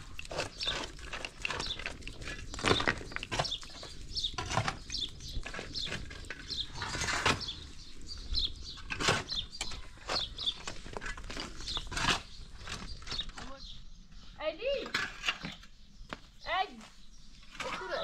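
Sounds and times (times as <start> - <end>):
chickens flapping and scuffling: 0.0 - 13.6.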